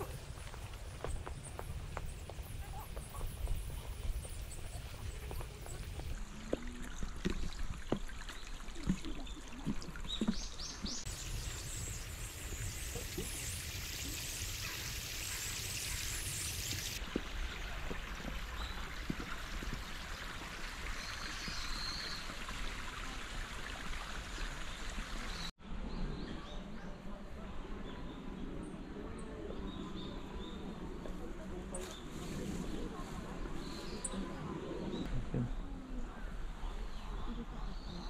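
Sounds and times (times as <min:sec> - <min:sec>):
footsteps on wooden bridge: 0:00.0 - 0:08.1, 0:17.0 - 0:20.5
stream trickling: 0:00.0 - 0:25.5.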